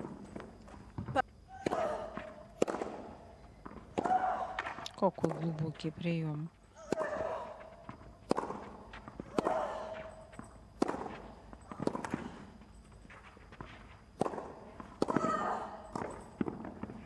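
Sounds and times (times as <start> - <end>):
racket hitting tennis ball: 1.6 - 5.6, 6.8 - 12.5, 14.2 - 17.0.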